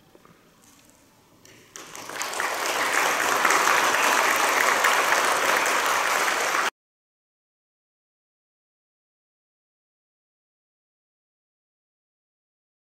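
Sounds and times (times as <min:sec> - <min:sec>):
audience applauding: 0:01.7 - 0:06.7.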